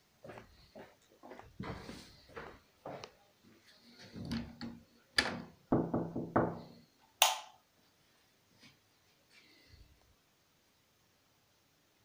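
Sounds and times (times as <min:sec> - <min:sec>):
knocking on wooden door: 0:05.7 - 0:06.6.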